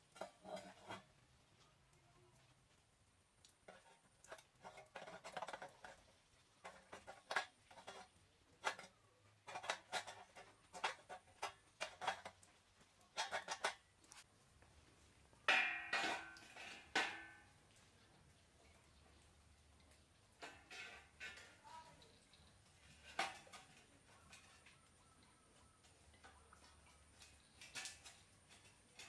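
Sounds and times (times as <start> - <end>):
ringing metal clangs: 15.5 - 17.4.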